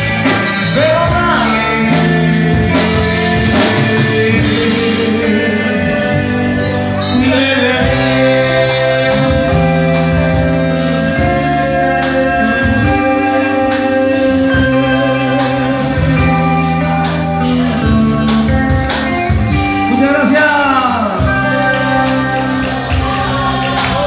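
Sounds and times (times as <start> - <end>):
man singing into microphone: 0.0 - 18.6, 19.8 - 24.0
drum kit with cymbal beat: 0.0 - 24.0
electric guitar: 0.0 - 24.0
keyboard: 0.0 - 24.0.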